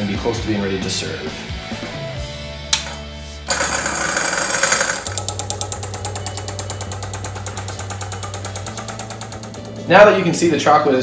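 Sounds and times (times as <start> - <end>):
motor humming with fast rattle: 3.5 - 10.4.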